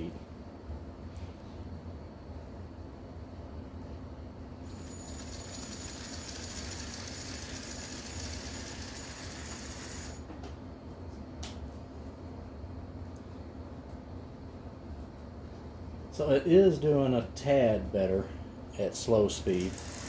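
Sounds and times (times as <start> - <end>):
model train motor whine: 4.6 - 10.2, 19.6 - 20.0.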